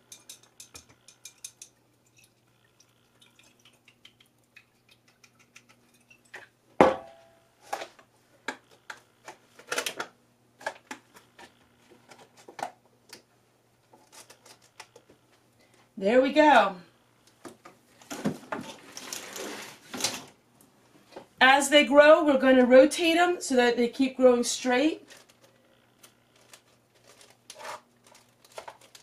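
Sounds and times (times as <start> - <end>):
small pots clinking and tapping: 0.0 - 2.4
faint steady hum: 0.0 - 29.0.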